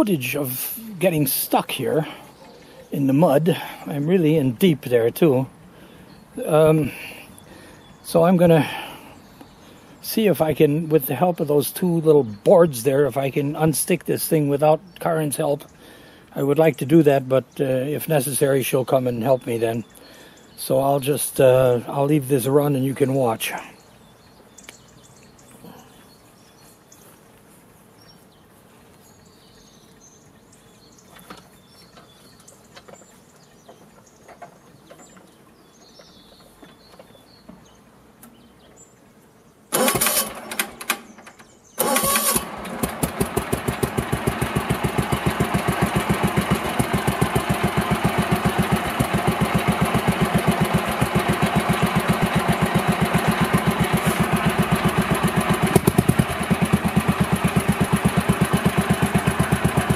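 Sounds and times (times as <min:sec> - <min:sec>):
mower engine starting and running: 0:00.0 - 0:09.1, 0:39.7 - 0:59.9
outdoor background: 0:00.0 - 0:59.9.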